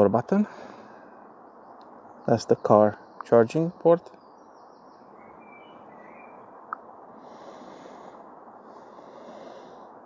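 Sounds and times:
steady outdoor background: 0.0s - 10.0s
faint bird chirps: 1.0s - 6.8s.

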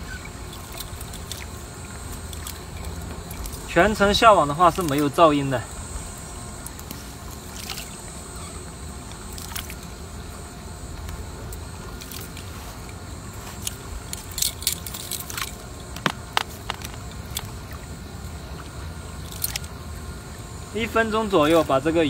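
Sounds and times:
net floats clicking and rustling: 0.0s - 5.5s, 6.6s - 10.0s, 10.9s - 18.0s, 18.6s - 19.8s
steady low rumble: 0.0s - 22.0s.

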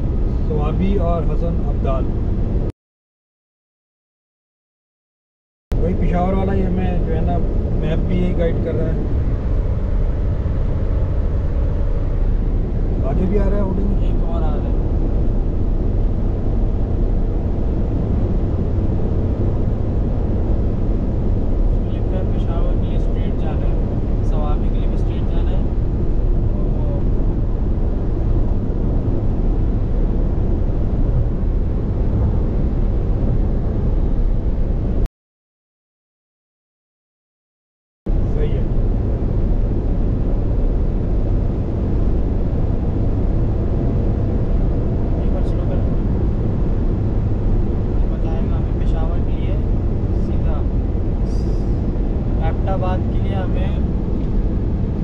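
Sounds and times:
wind noise: 0.0s - 2.7s, 5.7s - 35.1s, 38.1s - 55.0s
car interior road rumble: 5.8s - 35.1s, 38.1s - 55.0s.

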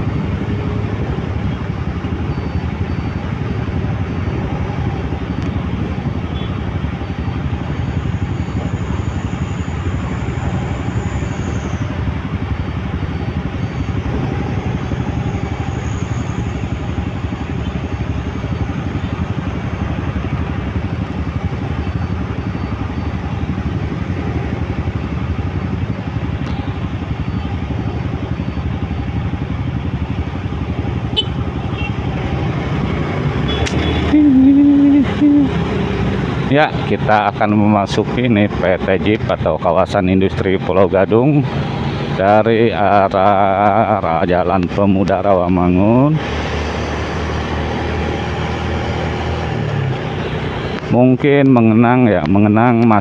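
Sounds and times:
idling and passing vehicles: 0.0s - 53.0s
short pitched tone: 33.4s - 35.5s.

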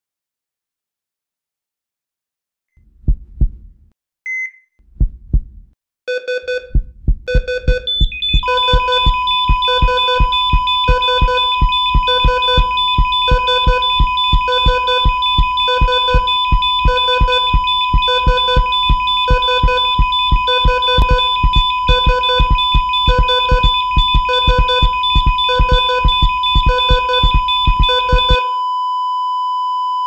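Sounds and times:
low thumps: 2.8s - 3.9s, 4.8s - 5.8s, 6.6s - 28.4s
short high beep: 4.3s - 4.7s, 7.3s - 28.6s
electronic synthesizer music: 7.4s - 28.4s.

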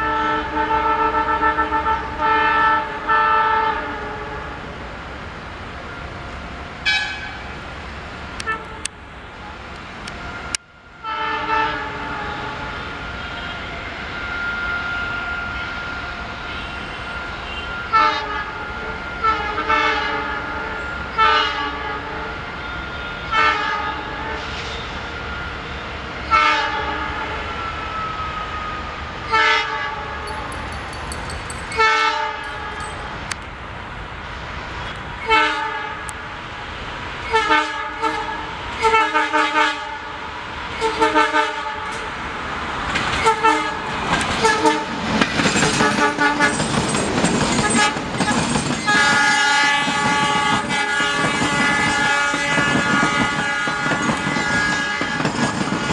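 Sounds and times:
locomotive horn honks: 0.0s - 4.6s, 6.8s - 7.5s, 8.4s - 8.9s, 11.0s - 24.5s, 26.3s - 27.6s, 35.2s - 36.1s, 37.3s - 40.2s, 40.8s - 42.0s, 43.2s - 45.0s, 45.7s - 46.6s, 48.8s - 55.9s
train wheels clattering on rails: 30.2s - 33.5s, 41.8s - 42.2s, 42.8s - 55.9s.

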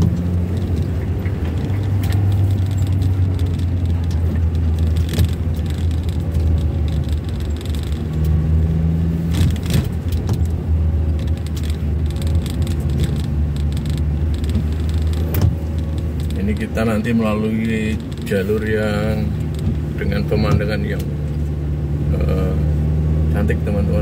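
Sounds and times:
engine and tyre drone: 0.0s - 24.0s.

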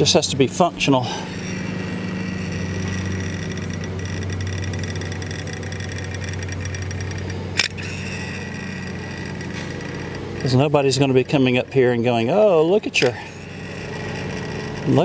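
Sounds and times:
lawnmower engine running: 0.0s - 15.0s
sharp click: 2.7s - 10.7s.

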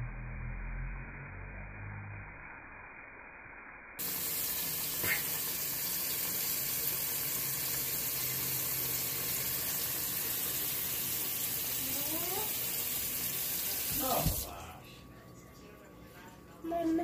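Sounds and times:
running water hissing: 4.0s - 14.5s.

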